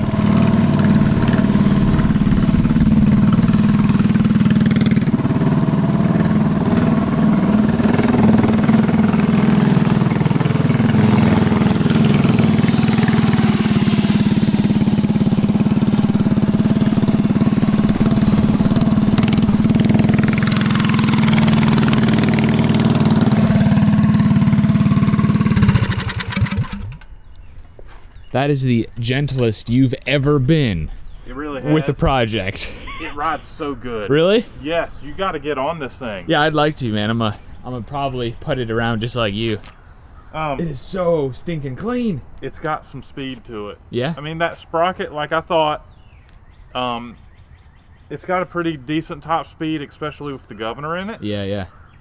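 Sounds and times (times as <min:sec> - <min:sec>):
small engine running: 0:00.0 - 0:27.0.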